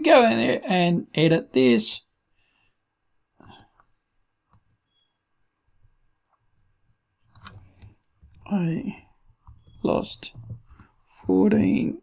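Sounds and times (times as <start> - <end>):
computer mouse clicks: 3.4 - 3.9, 4.5 - 5.0, 7.2 - 8.5, 9.4 - 11.0.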